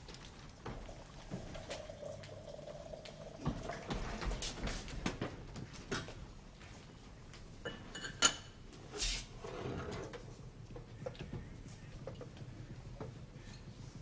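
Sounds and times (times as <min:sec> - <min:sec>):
china cups and silverware clinking: 0:07.6 - 0:08.6.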